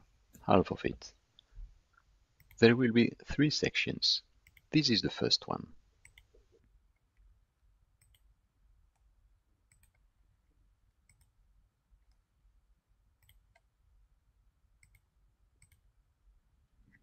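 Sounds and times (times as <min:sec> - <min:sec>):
computer mouse clicks: 0:02.4 - 0:02.6, 0:04.4 - 0:04.7, 0:06.0 - 0:07.3, 0:08.0 - 0:08.3, 0:09.7 - 0:10.1, 0:11.0 - 0:11.4, 0:13.2 - 0:13.7, 0:14.8 - 0:15.8.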